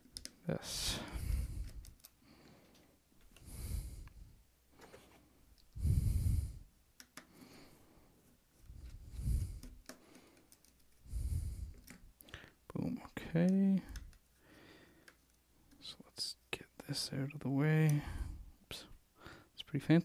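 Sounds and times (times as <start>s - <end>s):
person breathing: 0.6s - 12.7s, 13.8s - 15.3s, 18.0s - 19.6s.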